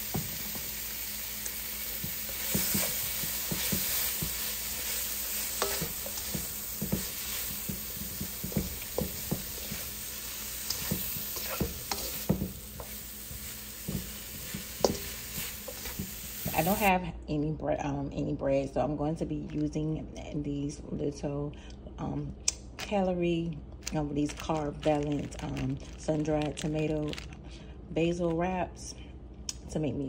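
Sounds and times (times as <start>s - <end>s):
vegetables sizzling in wok: 0.0s - 16.9s
spatula knocking and scraping pan: 2.0s - 16.9s.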